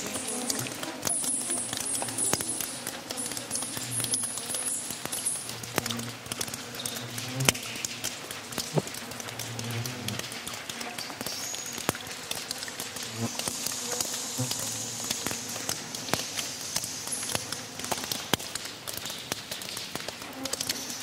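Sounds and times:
bats calling: 0.0s - 8.0s, 13.2s - 18.2s
insects buzzing: 0.0s - 18.7s, 20.2s - 21.0s
water dripping: 0.0s - 21.0s.

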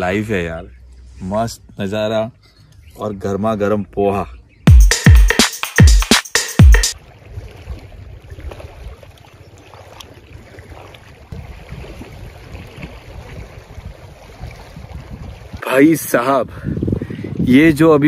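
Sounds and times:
wind rumble on microphone: 7.0s - 9.2s, 11.3s - 18.0s
water lapping at shore: 7.0s - 17.8s.

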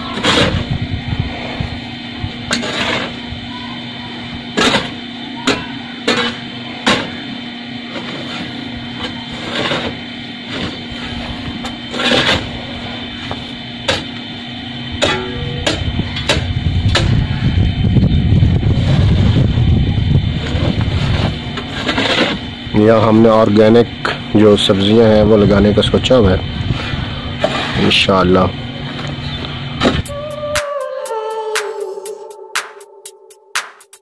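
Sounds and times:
steady hum: 0.0s - 34.0s
hoe striking dry soil: 15.0s - 17.1s.

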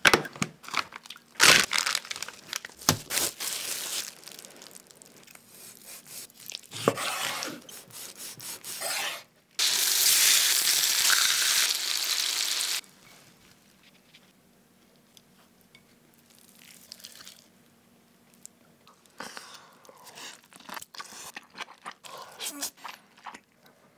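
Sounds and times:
faint handling sounds: 2.0s - 7.8s, 12.8s - 16.1s
meat sizzling in a hot pan: 9.6s - 12.8s.

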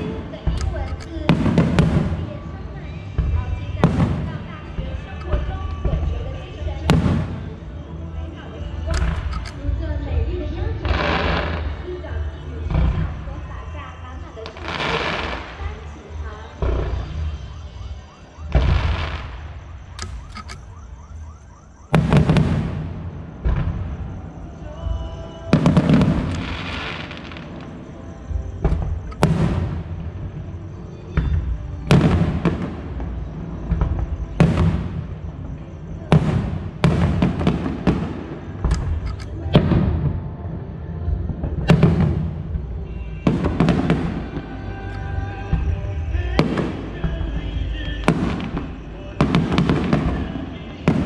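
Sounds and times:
firework shells bursting: 8.9s - 9.7s, 36.2s - 39.9s.

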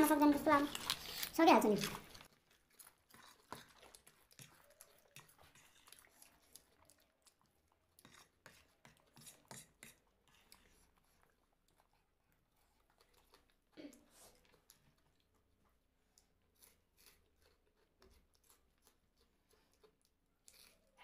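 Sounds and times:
person chewing snacks: 0.0s - 8.4s, 16.1s - 21.0s.

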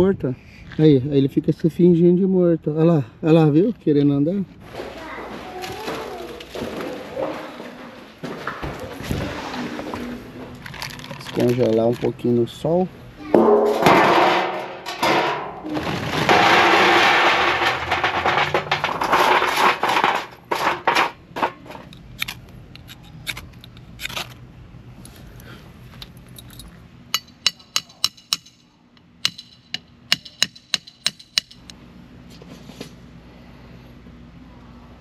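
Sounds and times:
charcoal lumps knocking: 13.4s - 21.9s
charcoal poured into metal tray: 15.6s - 21.0s.

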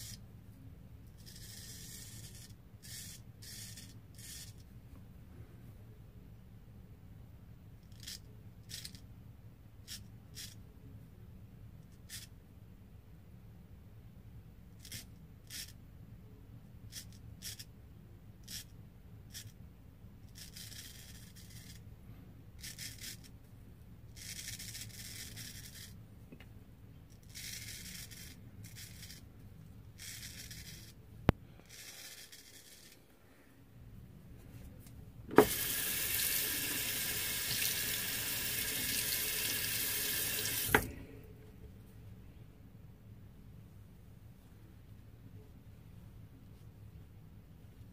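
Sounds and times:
straight razor scraping whiskers: 31.6s - 33.0s
tap running into sink: 35.3s - 37.8s, 40.3s - 41.0s.

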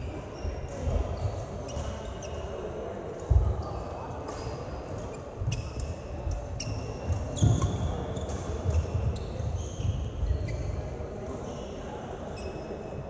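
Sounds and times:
shoes squeaking on floor: 0.2s - 2.6s, 5.1s - 13.0s.

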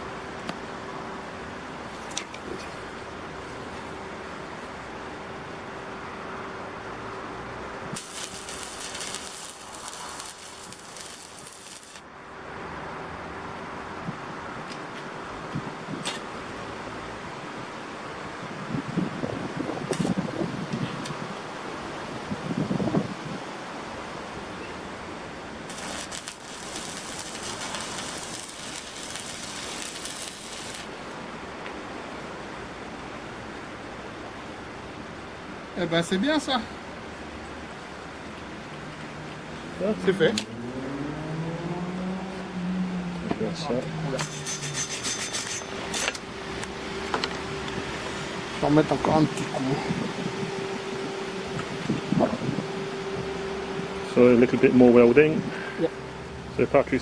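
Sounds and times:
welding arc crackling and hissing: 7.9s - 12.1s, 19.8s - 20.3s, 25.7s - 31.2s, 44.1s - 52.5s.

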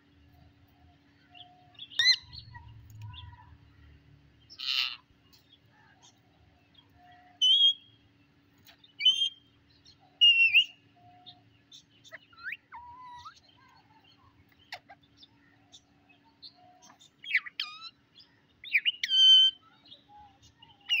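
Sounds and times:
parakeet shrill calls: 1.9s - 2.6s, 17.4s - 18.0s.

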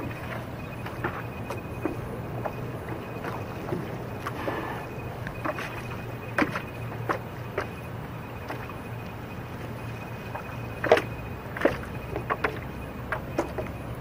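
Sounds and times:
steady low hum: 0.0s - 14.0s
water lapping against hull: 0.0s - 14.0s
small knocks and drips: 5.2s - 14.0s.

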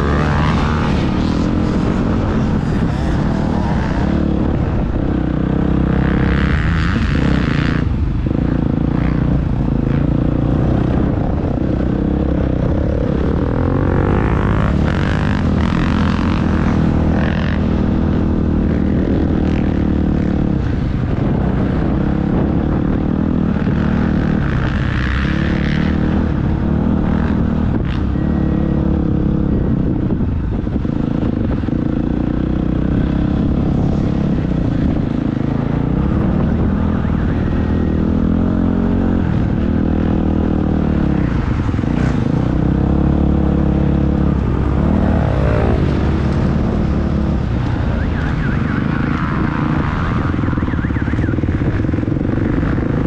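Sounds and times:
motocross bike engine revving: 0.0s - 20.9s, 31.5s - 53.0s.

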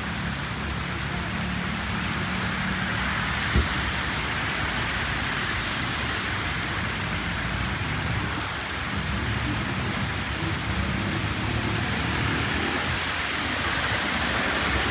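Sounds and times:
car tyres hissing on wet road: 0.0s - 14.9s
heavy rain: 0.0s - 14.9s
low thump: 3.5s - 3.8s.

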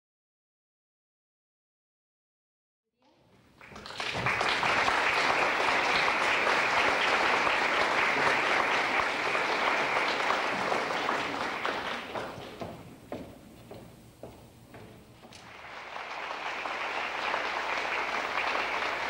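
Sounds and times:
audience applauding: 3.3s - 13.1s, 15.3s - 19.0s.

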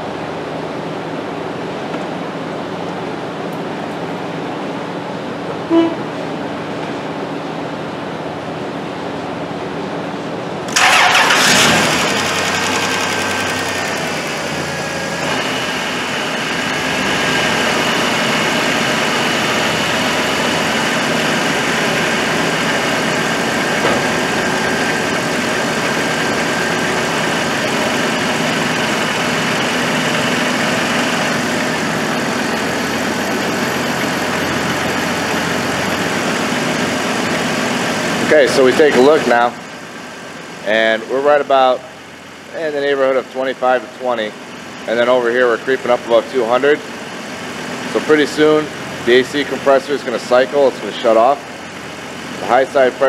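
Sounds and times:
car engine idling: 10.7s - 40.6s
steady high whine: 12.0s - 53.0s.

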